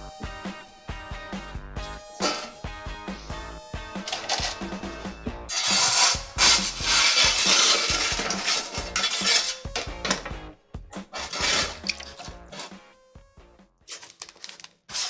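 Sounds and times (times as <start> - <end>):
background music: 0.0 - 14.0
metal peel scraping oven floor: 2.2 - 2.6, 4.0 - 4.8, 5.5 - 12.8.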